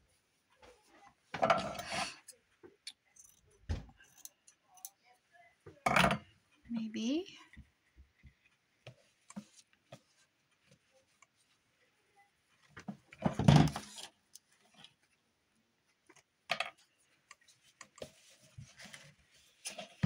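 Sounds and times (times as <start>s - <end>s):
materials rustling: 7.8s - 20.0s.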